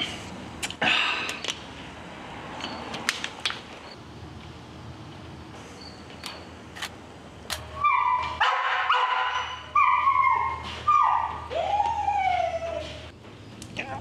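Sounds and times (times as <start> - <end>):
dog whimpering: 9.4 - 13.1.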